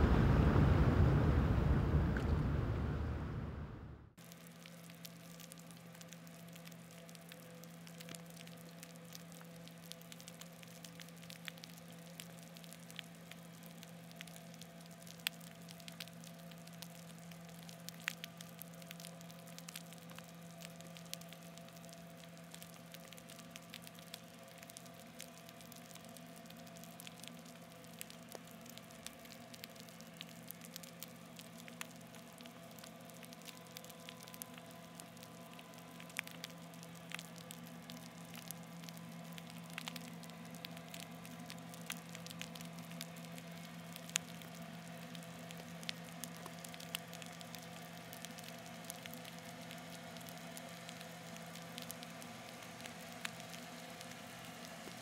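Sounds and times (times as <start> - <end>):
underwater ship machinery hum: 0.0 - 4.2
crackling clicks: 4.2 - 55.0.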